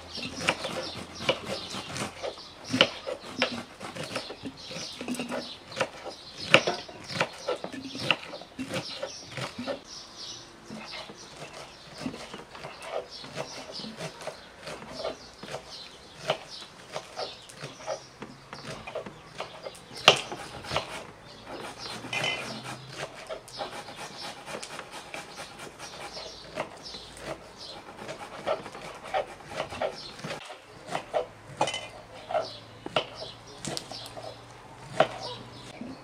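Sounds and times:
chickens clucking: 10.5s - 36.0s
knife cutting cucumbers: 10.7s - 36.0s.

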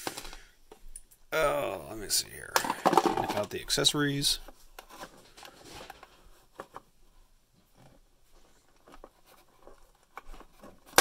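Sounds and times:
cardboard rustling: 4.3s - 11.0s.

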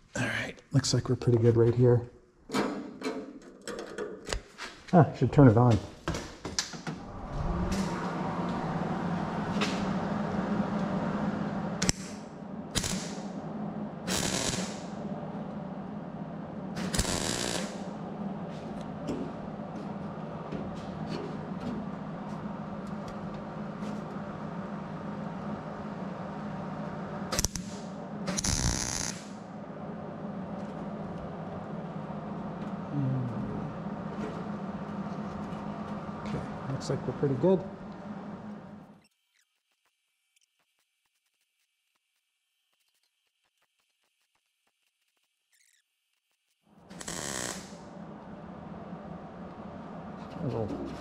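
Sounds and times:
welder humming: 7.0s - 38.9s, 46.8s - 50.7s
welding arc crackle: 11.8s - 13.2s, 14.1s - 14.9s, 16.8s - 17.9s, 27.3s - 29.4s, 39.3s - 47.9s.

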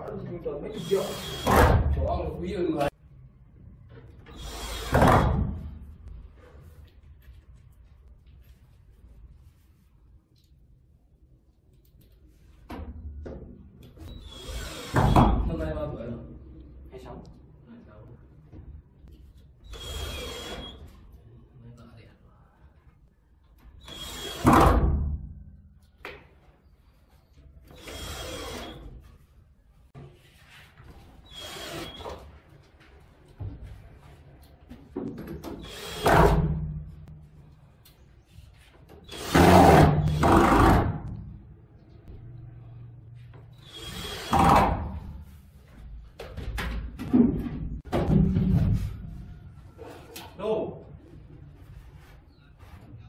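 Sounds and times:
cordless drill running: 0.8s - 1.5s, 14.2s - 15.0s, 27.8s - 28.8s
cordless drill driving screws: 0.8s - 1.6s, 4.3s - 5.0s, 14.0s - 15.2s, 19.7s - 20.8s, 23.8s - 24.5s, 27.7s - 28.9s, 31.3s - 32.1s, 39.0s - 40.6s, 43.6s - 44.6s.

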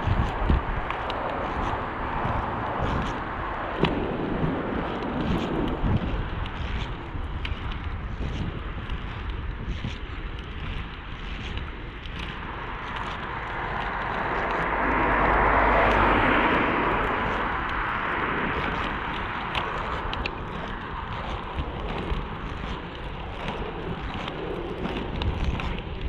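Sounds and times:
car passing: 0.0s - 7.9s, 11.0s - 26.0s
skate wheels rolling on asphalt: 0.0s - 26.0s
wind on microphone: 0.0s - 26.0s.

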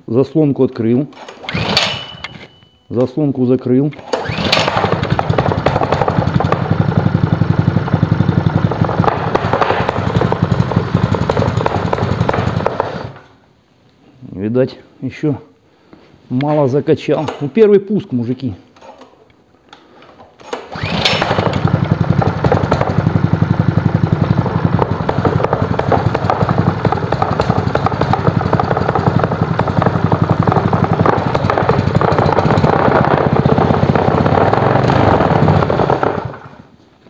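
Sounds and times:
petrol engine running: 4.1s - 13.2s, 20.7s - 36.6s.

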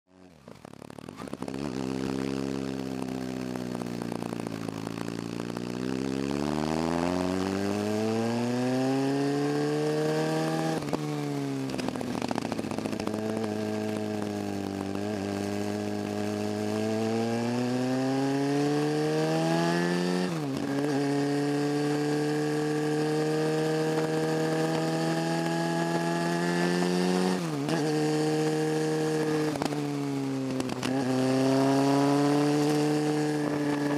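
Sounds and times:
motorcycle engine accelerating: 0.1s - 33.9s.

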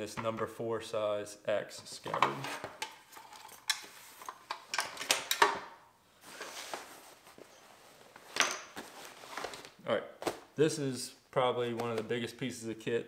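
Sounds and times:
fabric rustling: 6.1s - 10.5s.

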